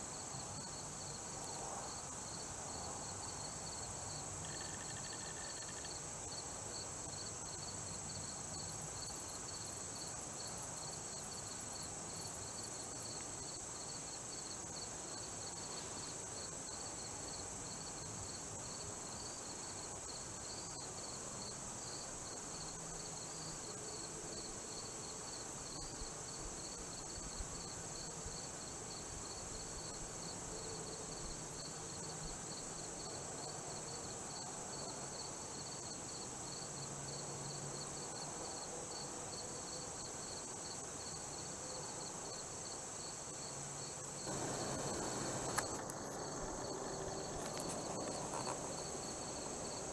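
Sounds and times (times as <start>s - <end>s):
insect pulsing chirp: 4.4s - 6.0s, 44.2s - 49.8s
insects high-pitched drone: 4.4s - 6.4s, 42.6s - 49.9s.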